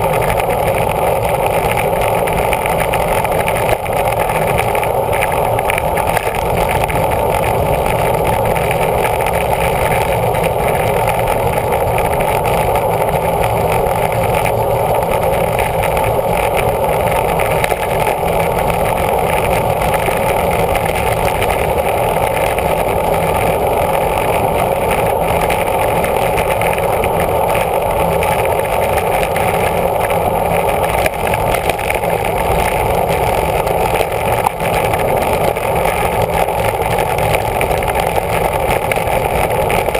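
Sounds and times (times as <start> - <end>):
road and tyre rumble: 0.0 - 39.9
wind noise on microphone: 0.0 - 39.9.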